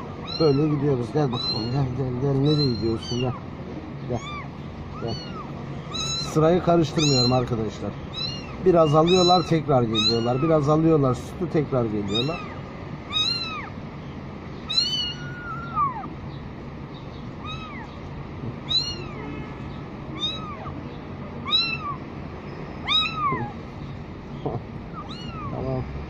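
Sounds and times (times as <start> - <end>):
kittens meowing: 0.0 - 16.2, 16.9 - 26.0.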